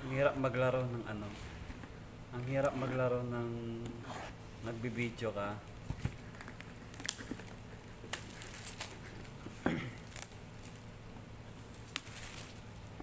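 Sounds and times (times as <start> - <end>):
steady low hum: 0.0 - 13.0
cardboard and plastic film crinkling: 6.1 - 10.9, 11.6 - 12.7.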